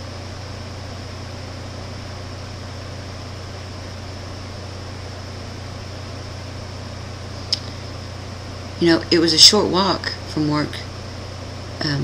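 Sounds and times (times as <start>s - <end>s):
constant hiss: 0.0s - 12.0s
steady low hum: 0.0s - 12.0s.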